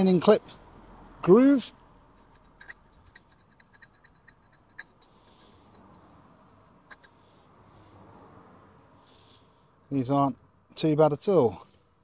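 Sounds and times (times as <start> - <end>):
metal pick clicking and scraping: 2.1 - 7.2.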